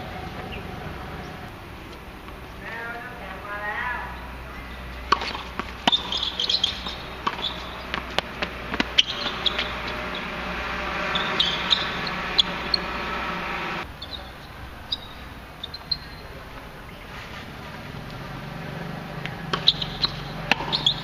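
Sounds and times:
droning hum: 0.0s - 15.6s
racket striking ball: 4.9s - 13.9s, 19.2s - 21.0s
ball bouncing on hard court: 5.0s - 12.9s, 19.2s - 21.0s
faint bird chirps: 14.0s - 17.2s.

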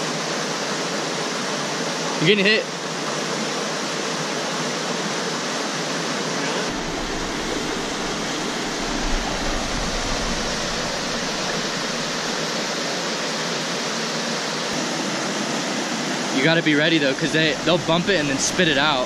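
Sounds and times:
water rushing over boulders: 0.0s - 19.0s
low rumble: 6.7s - 12.7s.

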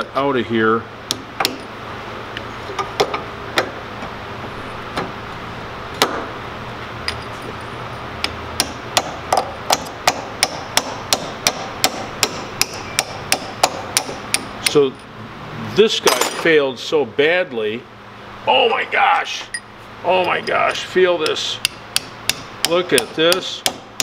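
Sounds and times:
hammer tapping metal: 8.2s - 14.8s, 20.2s - 24.0s.

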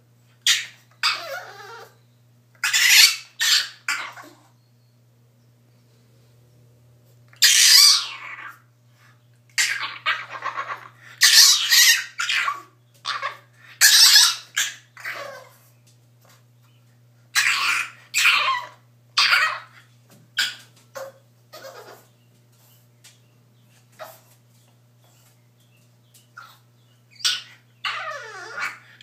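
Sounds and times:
puppy whining and yelping: 0.4s - 2.0s, 2.6s - 4.6s, 7.3s - 8.6s, 9.6s - 15.7s, 17.4s - 22.1s, 26.4s - 29.0s.

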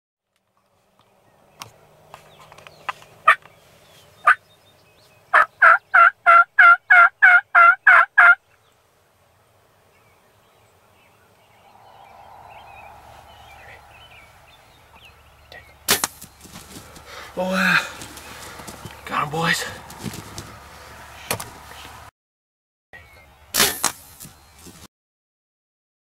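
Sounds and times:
turkeys yelping: 3.2s - 3.5s, 4.2s - 4.4s, 5.3s - 8.5s, 11.8s - 22.0s.

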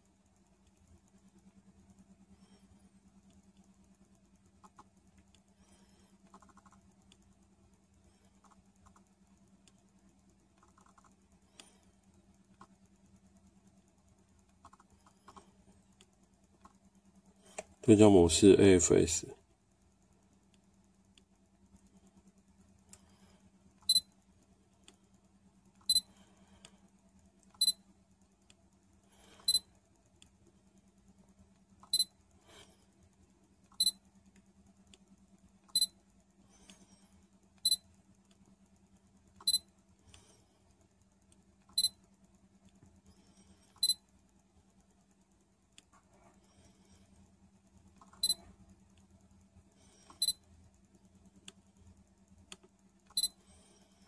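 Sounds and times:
camera focus beep: 23.8s - 24.1s, 25.8s - 26.1s, 31.9s - 32.1s, 33.8s - 34.0s, 35.7s - 36.0s, 37.6s - 37.8s, 41.7s - 42.0s, 43.8s - 44.0s, 48.2s - 48.4s, 50.2s - 50.4s, 53.1s - 53.4s.

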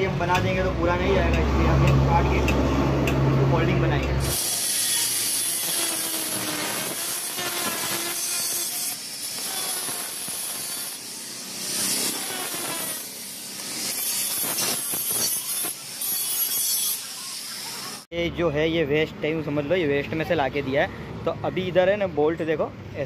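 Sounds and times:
angle grinder cutting steel: 4.0s - 18.1s.

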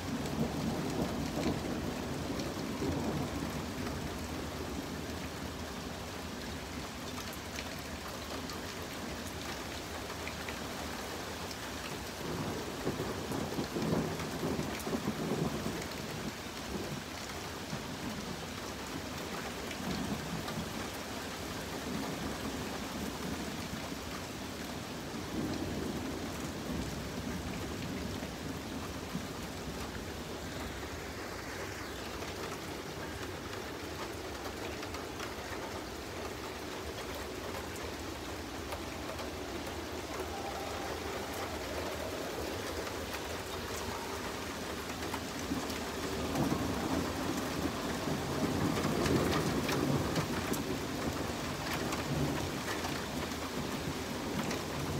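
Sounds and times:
steady rain falling: 0.0s - 54.9s
low thunder rolling: 38.6s - 51.3s.

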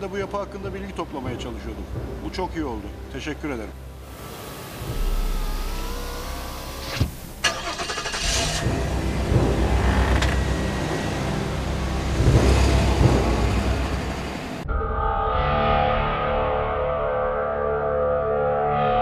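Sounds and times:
car engine rumbling: 0.0s - 14.6s.

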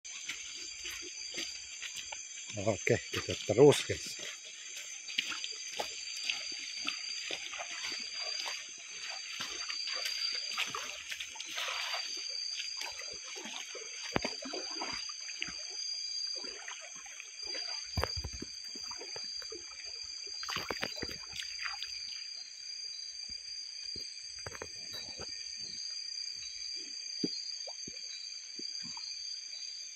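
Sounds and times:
night insects droning: 0.0s - 29.9s
water sloshing from wading: 0.1s - 22.4s.

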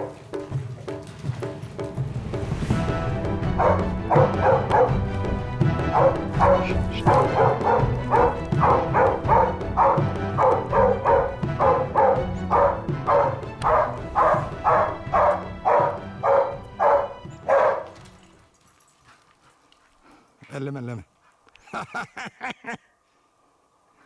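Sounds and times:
background music: 0.0s - 18.9s
dog barking: 3.6s - 5.0s, 5.9s - 18.0s.

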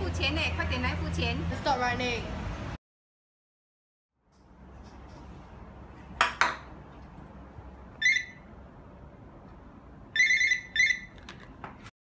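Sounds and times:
phone electronic ringtone: 8.0s - 8.4s, 10.2s - 11.2s.

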